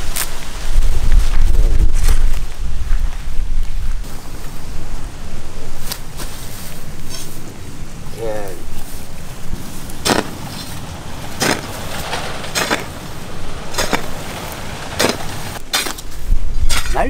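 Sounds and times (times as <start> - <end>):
hoe chopping into dry earth: 9.9 - 13.0, 13.7 - 17.0.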